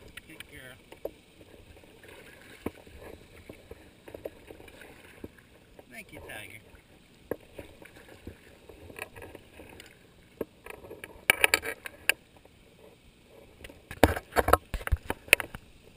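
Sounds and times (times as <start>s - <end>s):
splashing and bumping: 0.0s - 10.0s
paddle splashing in water: 0.0s - 12.2s.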